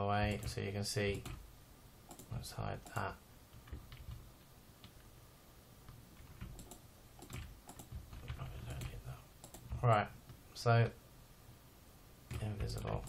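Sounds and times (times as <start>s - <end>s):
low steady hum: 0.0s - 13.0s
mouse and keyboard clicks: 2.1s - 3.0s, 5.9s - 9.8s.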